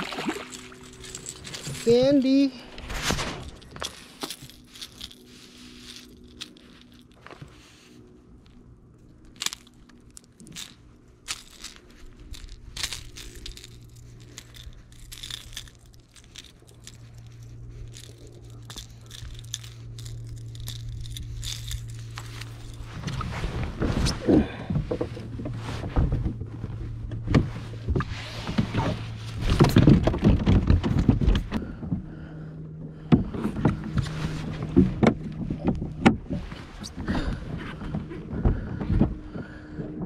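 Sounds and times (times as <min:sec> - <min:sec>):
low steady hum: 0:00.0 - 0:40.0
clicks and rattles of handling: 0:00.2 - 0:07.7, 0:08.4 - 0:24.0, 0:28.4 - 0:31.6.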